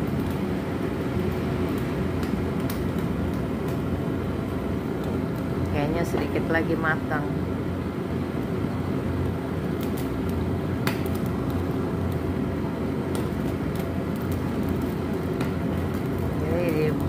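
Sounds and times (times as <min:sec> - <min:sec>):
small crackles: 0:00.0 - 0:03.9, 0:04.5 - 0:05.7, 0:09.2 - 0:12.4, 0:13.0 - 0:17.0
gas burner roaring: 0:00.0 - 0:17.0.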